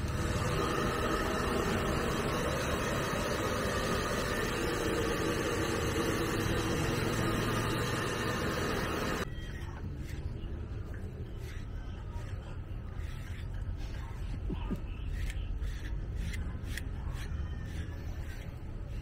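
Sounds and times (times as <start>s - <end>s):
hair dryer blowing: 0.0s - 9.2s.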